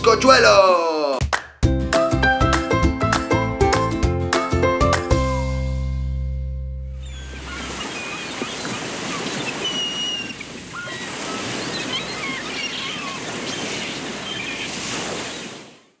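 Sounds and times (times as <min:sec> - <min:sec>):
high squeaks and chirps: 0:07.0 - 0:15.4
sea waves washing: 0:07.0 - 0:16.0.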